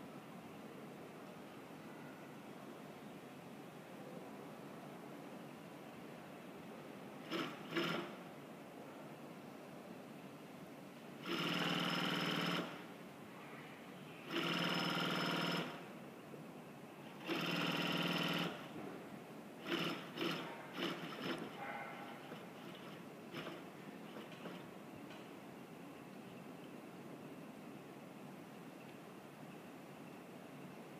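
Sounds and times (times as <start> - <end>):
sewing machine running: 7.2 - 8.2, 11.2 - 12.9, 14.3 - 15.9, 17.2 - 18.7, 19.6 - 24.7.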